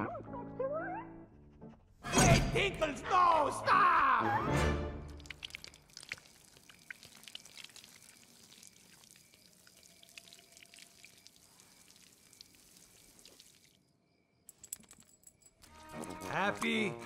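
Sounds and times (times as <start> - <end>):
faint dripping ticks: 5.1 - 15.7.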